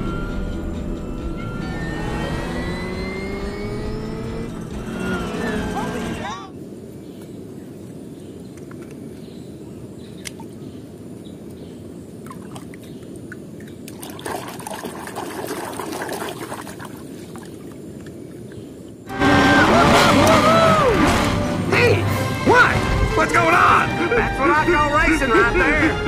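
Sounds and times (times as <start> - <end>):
film soundtrack music: 0.0 - 6.4, 19.1 - 26.0
water sloshing and splashing: 12.2 - 18.6
water trickling: 12.2 - 18.6.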